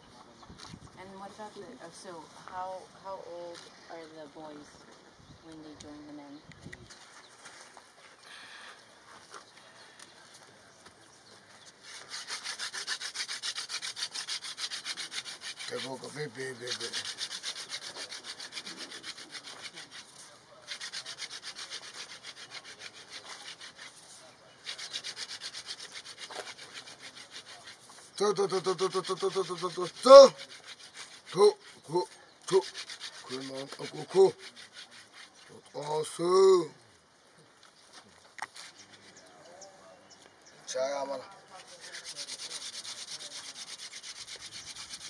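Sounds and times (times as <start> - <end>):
wood rasping on wood: 11.8 - 36.0, 41.5 - 45.0.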